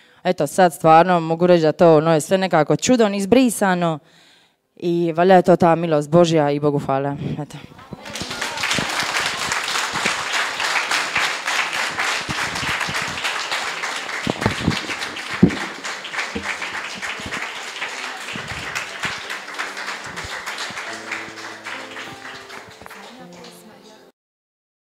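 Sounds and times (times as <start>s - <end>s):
audience applauding: 7.9s - 24.0s.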